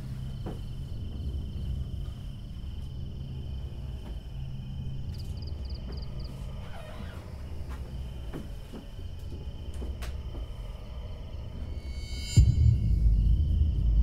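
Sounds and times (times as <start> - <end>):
crickets trilling: 0.0 - 14.0
quick cricket chirps: 0.0 - 14.0.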